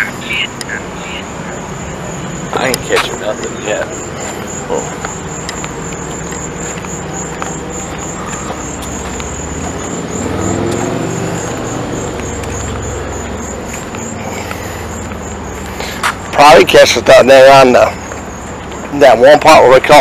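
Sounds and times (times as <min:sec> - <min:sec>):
car passing: 0:00.0 - 0:20.0
crickets chirping: 0:00.0 - 0:20.0.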